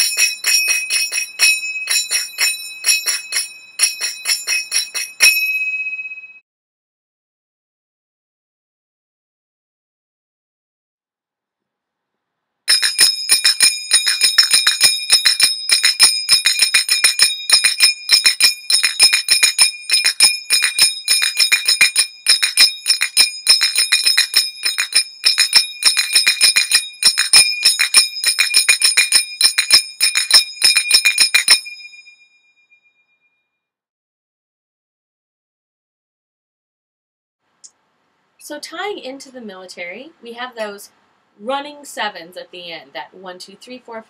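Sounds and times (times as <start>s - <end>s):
finger cymbals striking: 0.0s - 5.8s, 12.7s - 32.1s.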